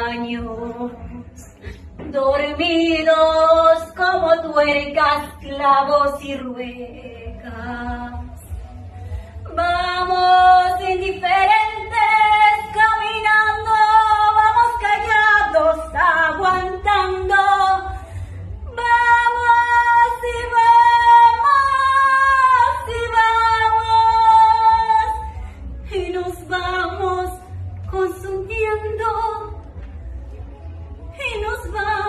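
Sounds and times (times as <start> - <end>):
woman singing unaccompanied: 9.5 - 18.0, 18.7 - 29.6.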